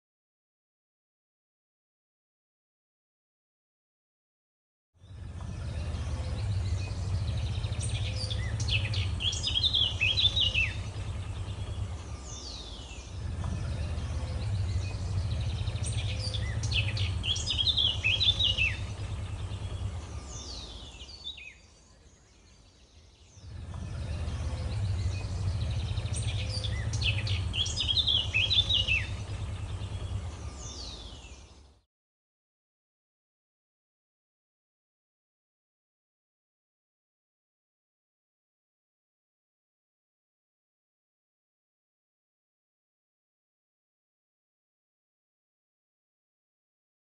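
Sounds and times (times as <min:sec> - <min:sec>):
low rumble: 0:05.0 - 0:22.6, 0:23.3 - 0:31.7
birds chirping: 0:05.0 - 0:31.8.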